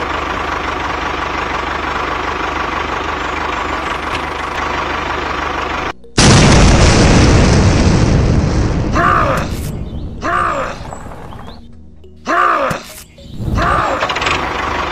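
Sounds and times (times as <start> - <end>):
tractor engine chugging: 0.0 - 6.0, 13.7 - 14.9.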